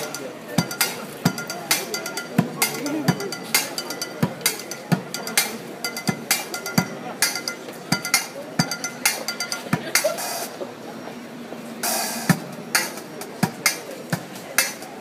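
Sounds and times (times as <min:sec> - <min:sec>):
clicking and clinking strikes: 0:00.0 - 0:10.2.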